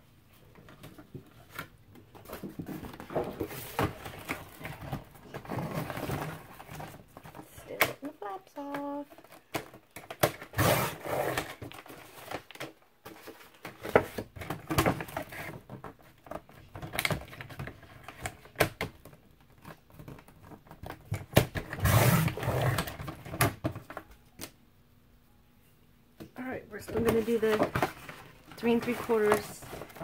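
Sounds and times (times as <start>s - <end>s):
cardboard rustling and scraping: 0.4s - 7.6s, 9.0s - 18.4s, 26.8s - 30.0s.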